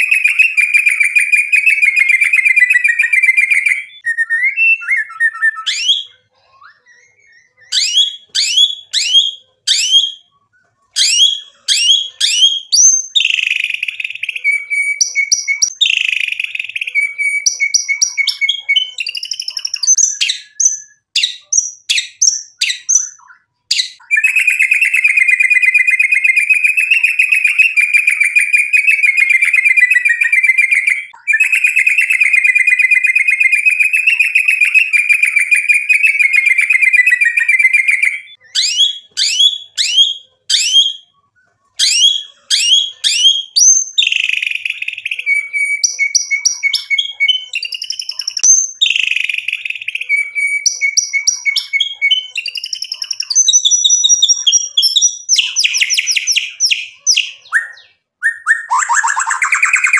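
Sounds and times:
bird singing whistled notes: 0.0 - 10.4, 11.0 - 41.2, 41.8 - 59.9.

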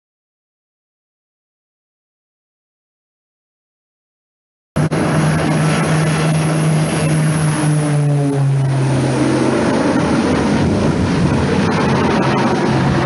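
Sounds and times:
propeller aircraft droning: 4.8 - 13.0.

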